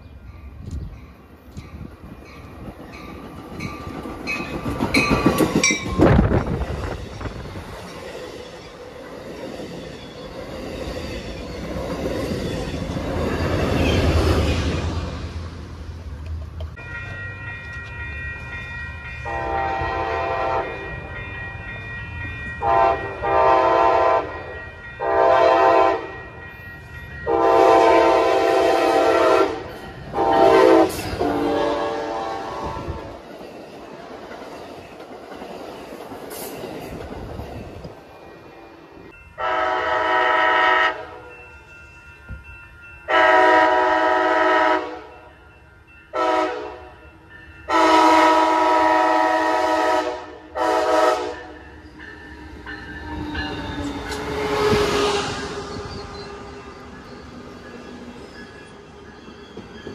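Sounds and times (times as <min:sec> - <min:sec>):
low rumble of moving train: 0:00.0 - 0:59.9
train horn blasts: 0:19.2 - 0:21.1, 0:22.6 - 0:26.3, 0:27.2 - 0:33.2, 0:39.4 - 0:41.3, 0:43.1 - 0:45.2, 0:46.1 - 0:47.0, 0:47.7 - 0:51.6.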